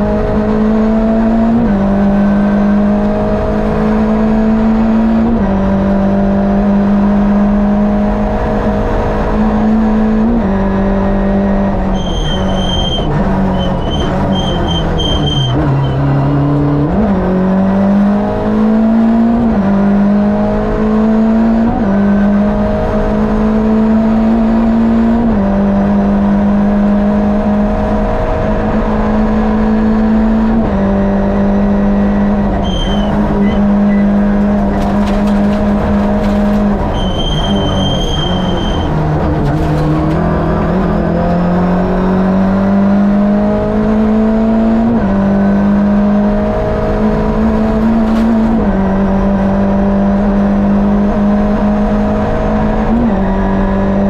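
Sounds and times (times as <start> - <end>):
rally car engine revving hard: 0.0 - 54.0
short high-pitched squeals: 11.9 - 16.2, 32.6 - 34.2, 36.9 - 39.0.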